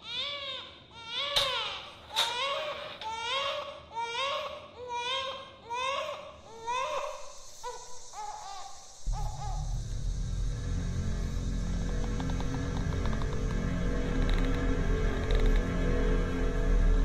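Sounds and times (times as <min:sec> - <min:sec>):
baby crying: 0:00.0 - 0:09.8.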